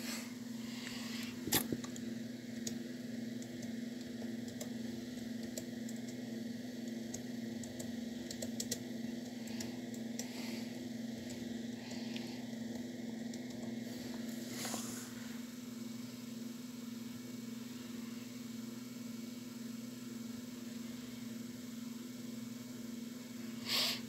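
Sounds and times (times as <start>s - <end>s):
steady low hum: 0.0s - 24.0s
mouse and keyboard clicks: 7.1s - 8.8s.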